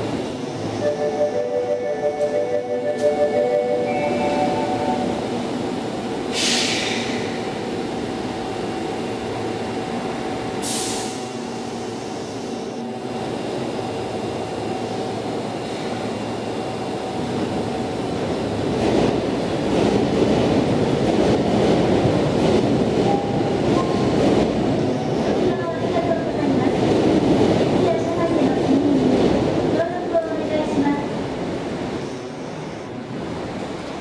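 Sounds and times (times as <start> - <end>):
train rolling into station: 0.0 - 34.0
short sharp hisses: 6.3 - 7.3.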